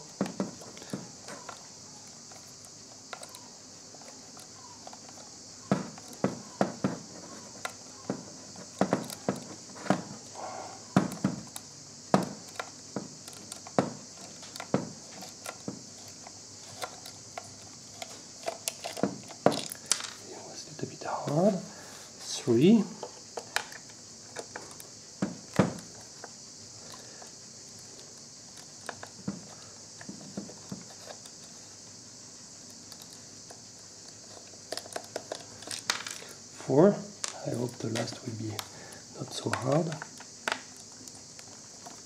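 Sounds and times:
steady hiss: 0.0 - 42.0.

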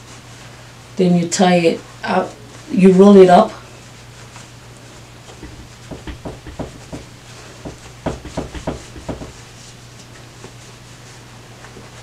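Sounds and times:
low steady hum: 5.2 - 9.8
cloth taps and rustles: 5.3 - 9.7.

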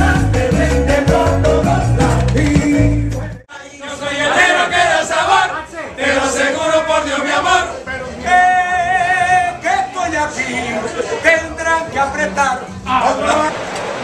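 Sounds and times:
live band with men singing: 0.0 - 3.5
men singing together loudly: 0.0 - 9.6.

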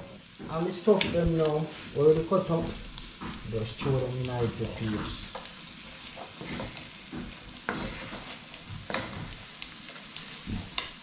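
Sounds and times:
food sizzling in a frying pan: 0.0 - 11.0.

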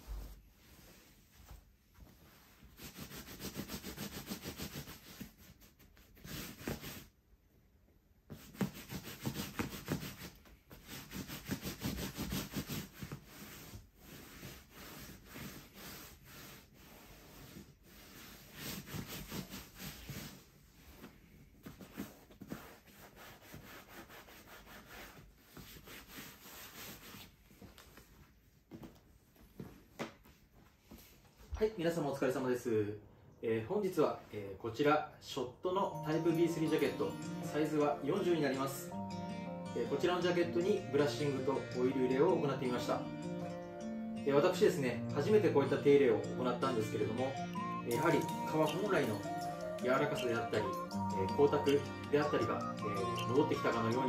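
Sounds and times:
hands rubbing leather: 0.0 - 7.1, 8.3 - 31.3.

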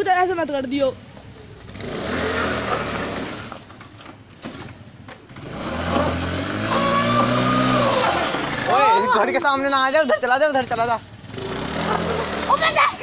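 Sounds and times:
scooter engine revving: 1.6 - 3.7, 4.4 - 9.2, 10.6 - 13.0.

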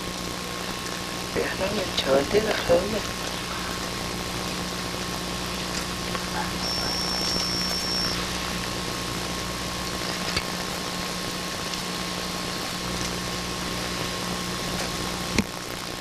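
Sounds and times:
steady hum and hiss: 0.0 - 16.0
high electronic beep: 6.6 - 8.2.

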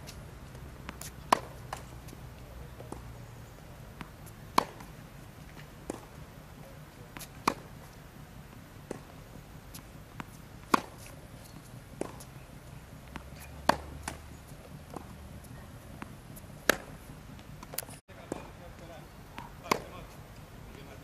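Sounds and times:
racket hitting tennis ball: 0.0 - 3.1, 3.9 - 6.3, 7.1 - 8.0, 8.8 - 18.5, 19.4 - 20.2
tennis ball bouncing: 0.1 - 20.2.

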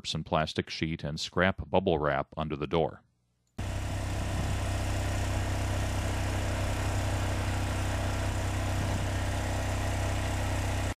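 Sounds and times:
low exhaust drone: 3.6 - 11.0
muffled generator motor noise: 3.6 - 11.0.

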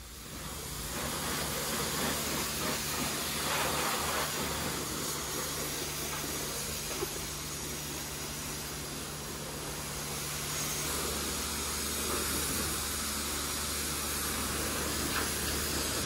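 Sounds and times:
spray wand hissing: 0.0 - 16.0
steady low hum: 0.0 - 16.0.

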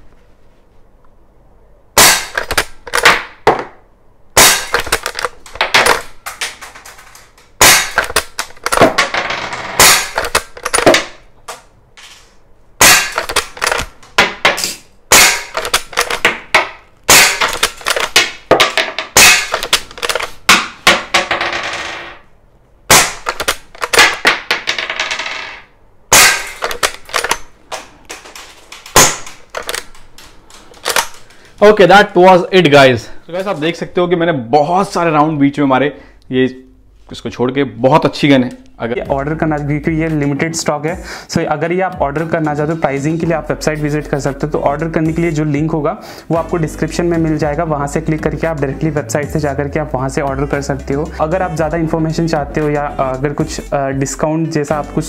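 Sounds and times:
air rifle shots popping: 2.0 - 3.4, 4.4 - 9.0, 9.8 - 11.2, 12.8 - 21.1, 22.9 - 24.5, 26.1 - 31.4
metallic lever clacks: 12.9 - 13.9, 14.6 - 18.3, 26.2 - 27.5.

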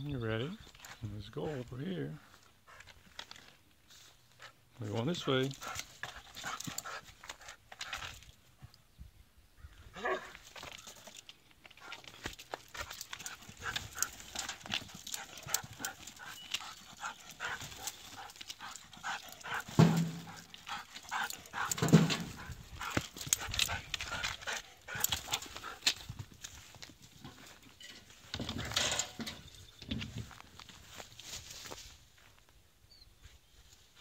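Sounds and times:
dog barking low: 9.9 - 10.4
rustling and crackling in brush: 10.2 - 28.6, 30.0 - 32.6.

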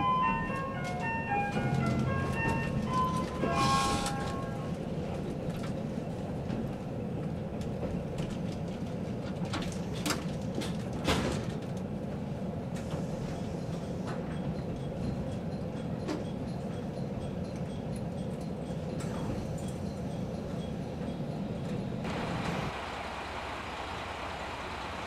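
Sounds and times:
onboard chime melody: 0.0 - 4.7
railcar running noise: 0.0 - 25.0.

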